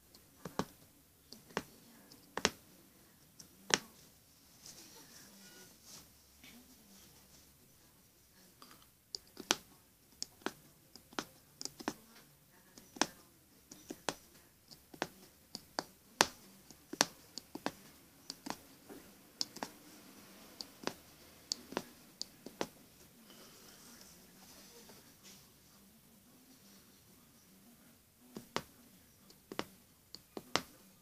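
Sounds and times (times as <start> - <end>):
punch needle clicking through fabric: 2.4 - 2.6, 9.1 - 12.0, 12.8 - 18.6, 19.4 - 19.8, 20.6 - 22.7, 29.3 - 29.7, 30.4 - 30.7.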